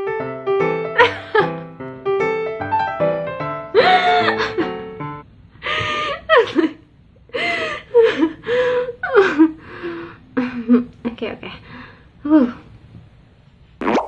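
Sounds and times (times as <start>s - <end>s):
piano music: 0.0s - 5.3s
woman laughing: 1.0s - 1.6s, 3.7s - 4.8s, 5.7s - 6.8s.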